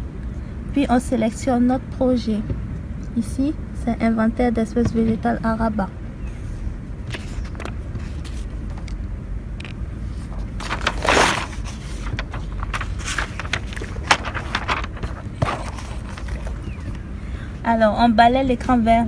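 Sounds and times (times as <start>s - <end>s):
low rumble: 4.9s - 17.7s.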